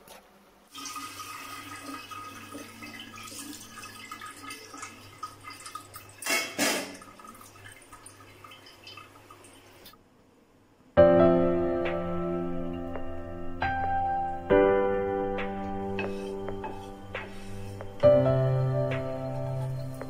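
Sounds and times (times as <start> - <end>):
water pouring into a colander: 0.7 - 10.0.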